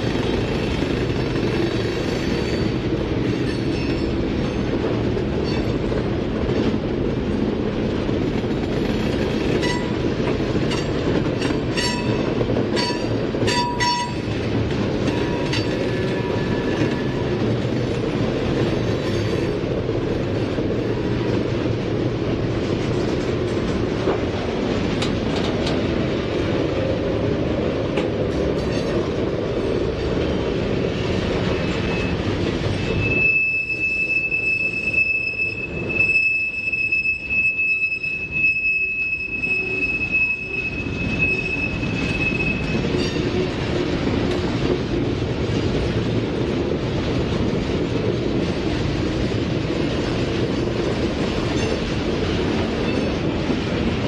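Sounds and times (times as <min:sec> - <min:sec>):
rail joint clicks: 0:00.0 - 0:54.0
train wheels rumbling on rail: 0:00.0 - 0:54.0
wheel flange squeal: 0:31.0 - 0:43.4.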